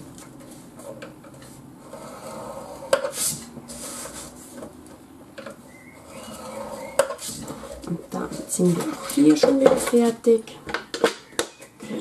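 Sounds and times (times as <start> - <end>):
stylus scraping plastic board: 0.4 - 4.7, 5.9 - 10.2
paper sliding: 1.4 - 4.6.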